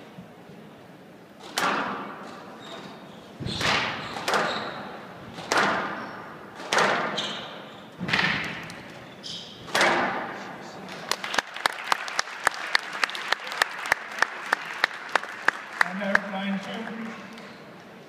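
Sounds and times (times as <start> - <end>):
squash ball hitting racket and walls: 1.4 - 10.6.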